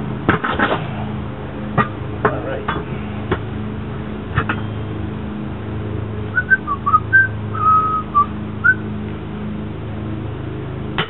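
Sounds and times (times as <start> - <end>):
steady low hum: 0.0 - 11.0
tire iron clinking on rim: 4.3 - 5.1
person whistling: 6.4 - 8.8.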